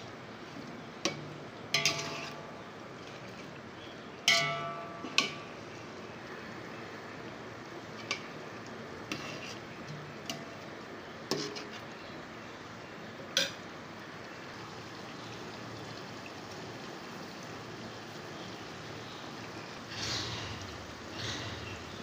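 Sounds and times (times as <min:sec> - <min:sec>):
low hiss of cooking gravy: 0:00.0 - 0:22.0
metal spoon clinking on pot: 0:01.1 - 0:02.5, 0:04.3 - 0:05.5.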